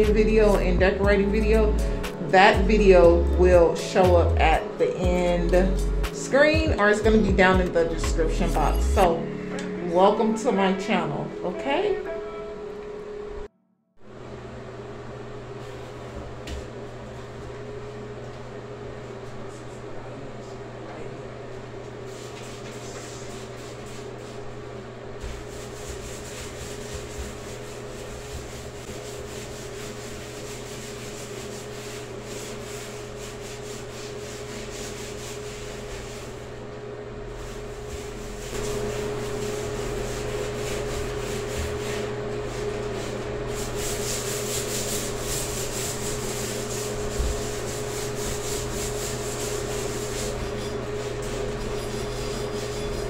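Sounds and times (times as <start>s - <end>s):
cloth scrubbing on tile: 25.2s - 36.6s, 37.3s - 53.0s.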